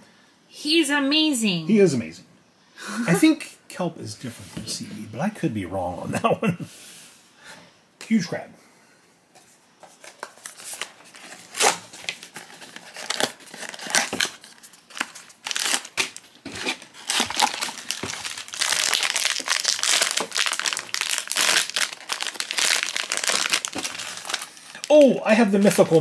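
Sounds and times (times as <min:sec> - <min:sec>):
foil bag crackling and rustling: 0:10.0 - 0:26.0.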